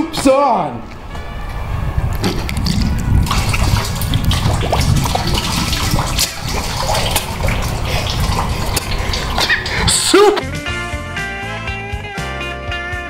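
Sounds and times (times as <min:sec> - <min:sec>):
soup splashing wetly: 0:02.6 - 0:10.4.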